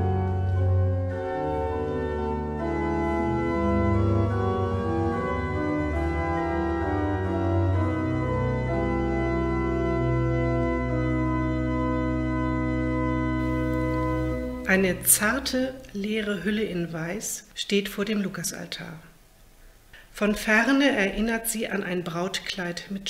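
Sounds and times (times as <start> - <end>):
deep organ pedal bass note: 0.0 - 15.0
church organ held chords: 0.0 - 15.9.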